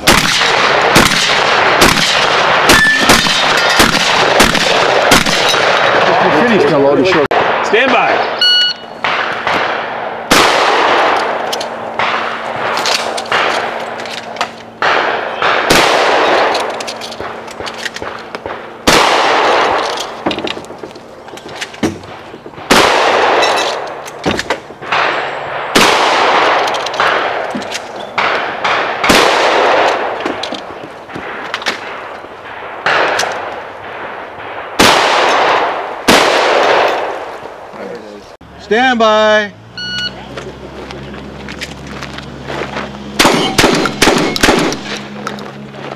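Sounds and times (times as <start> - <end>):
shotgun blasts: 0.0 - 6.5, 7.1 - 20.3, 21.9 - 27.5, 28.1 - 37.4, 43.2 - 45.1.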